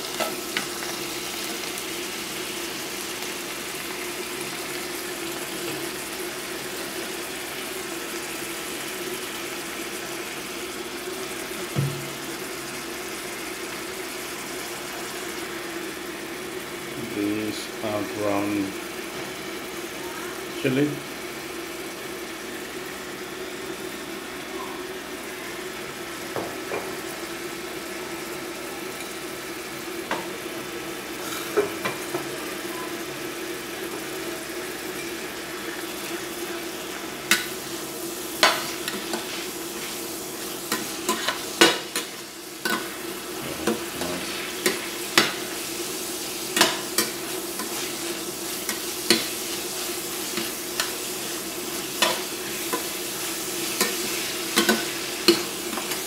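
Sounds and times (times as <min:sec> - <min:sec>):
food sizzling in a pan: 0:00.0 - 0:56.0.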